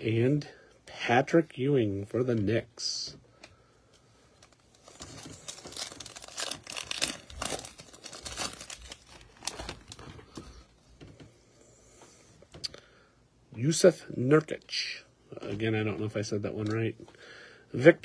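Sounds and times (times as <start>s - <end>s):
plastic wrapper tearing and crinkling: 4.4s - 10.1s.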